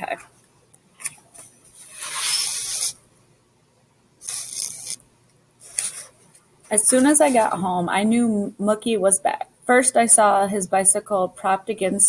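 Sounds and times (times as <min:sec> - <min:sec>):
book pages rustling: 0:05.6 - 0:06.4.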